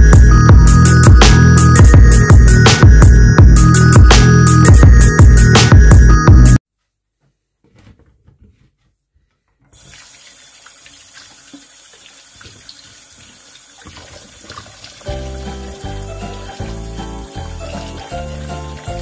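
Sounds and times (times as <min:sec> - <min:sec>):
electronic music: 0:00.0 - 0:06.6
tap water running: 0:09.7 - 0:19.0
hands rubbing vegetables: 0:14.8 - 0:19.0.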